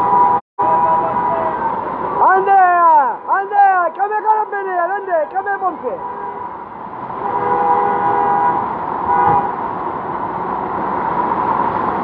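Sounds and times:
car horn: 0.0 - 3.4, 4.3 - 9.6
cars driving through flood water: 0.7 - 12.0.

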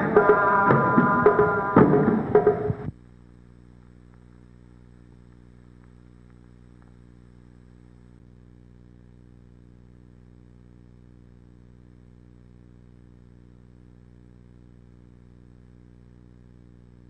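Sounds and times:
drum-led music: 0.0 - 2.9
faint low hum: 0.0 - 17.0.

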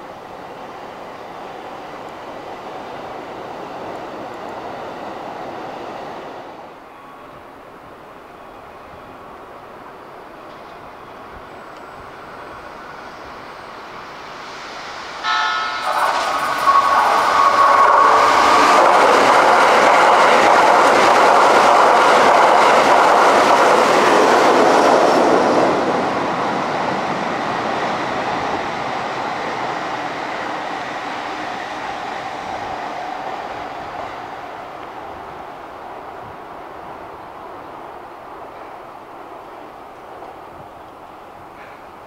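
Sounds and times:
train wheel and rail noise: 0.0 - 42.0
train horn blast: 15.2 - 18.7.

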